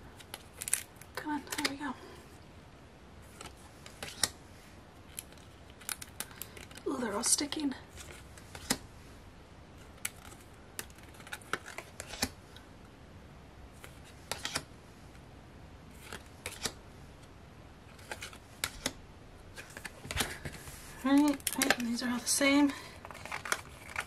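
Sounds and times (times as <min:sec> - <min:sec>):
cards clicking and tapping: 0:00.2 - 0:01.8, 0:03.4 - 0:04.4, 0:08.4 - 0:08.8, 0:10.0 - 0:12.4, 0:13.8 - 0:14.7, 0:16.0 - 0:16.8, 0:18.0 - 0:19.0, 0:19.6 - 0:22.0, 0:23.0 - 0:24.0.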